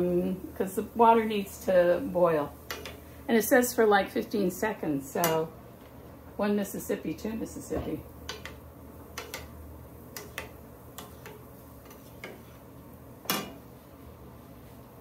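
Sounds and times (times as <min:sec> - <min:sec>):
low steady hum: 0:00.0 - 0:15.0
spatula clicking against metal pan: 0:08.3 - 0:08.6, 0:09.2 - 0:11.4.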